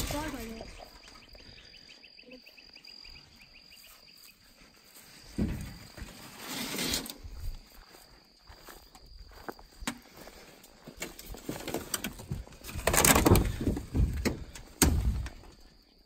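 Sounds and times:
metal sheet scraping and rattling: 5.4s - 7.3s.

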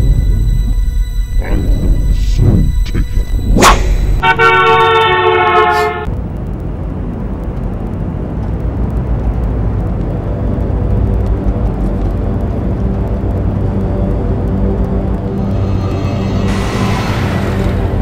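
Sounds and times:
car horn blast: 4.2s - 6.1s.

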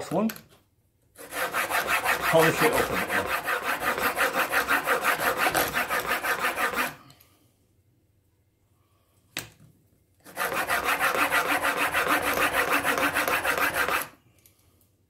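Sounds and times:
chisel rubbing on sharpening plate: 1.2s - 7.0s, 10.3s - 14.1s.

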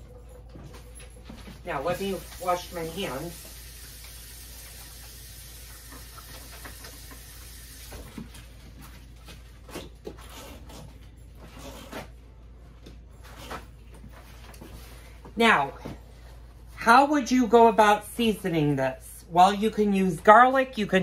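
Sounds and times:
tap running: 0.4s - 9.0s.

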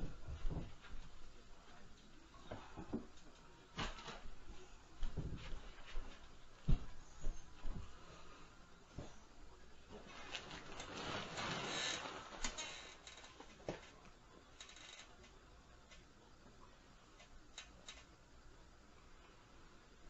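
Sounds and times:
rustling: 9.9s - 14.0s.

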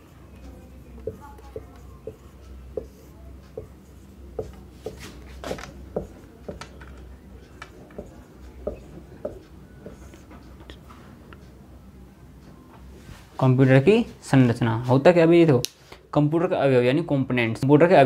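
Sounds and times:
marker pen writing on whiteboard: 0.0s - 10.9s.

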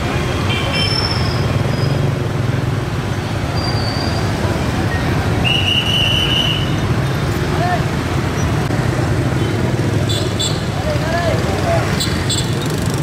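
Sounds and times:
motorbike engines passing: 0.0s - 13.0s
high squeal: 3.5s - 4.4s.

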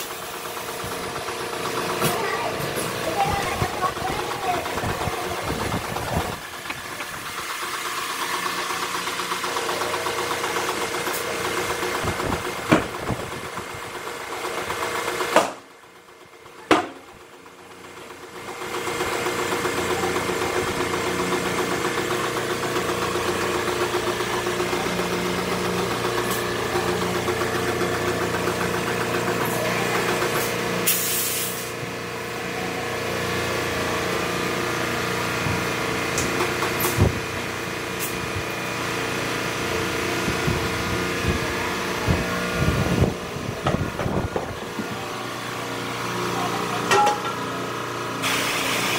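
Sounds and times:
tire changer motor hum: 0.0s - 48.9s
air hissing: 30.8s - 31.7s.

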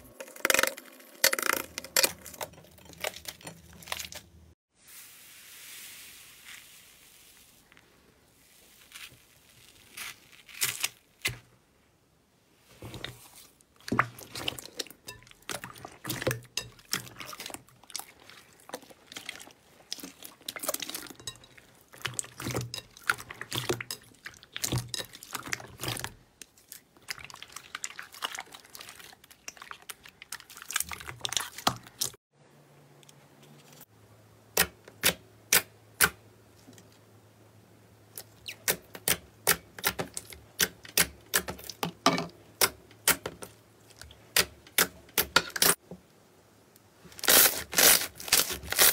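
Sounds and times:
hands squishing slime: 12.9s - 32.2s.

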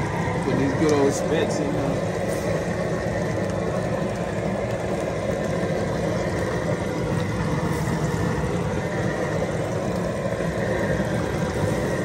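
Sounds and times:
fish frying in hot grease: 0.0s - 12.0s
low steady rumble: 0.0s - 12.0s.

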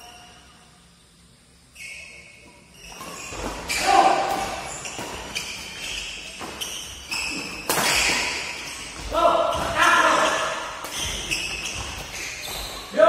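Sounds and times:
shoes squeaking on court: 1.6s - 13.0s
rackets hitting shuttlecock: 2.9s - 12.6s.

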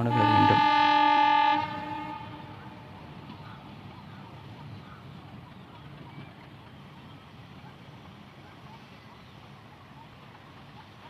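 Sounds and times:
train horn: 0.0s - 2.9s.

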